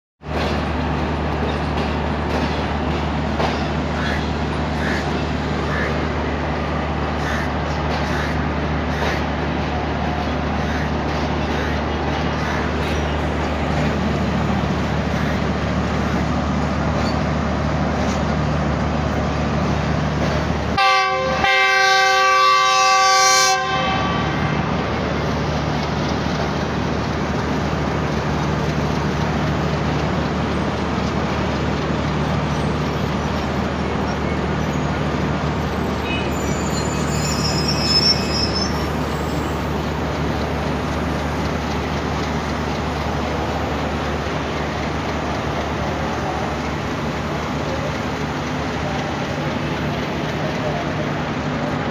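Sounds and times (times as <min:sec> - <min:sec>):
diesel locomotive engine drone: 0:00.2 - 0:51.9
multi-tone locomotive horn: 0:20.8 - 0:25.0, 0:36.0 - 0:38.8.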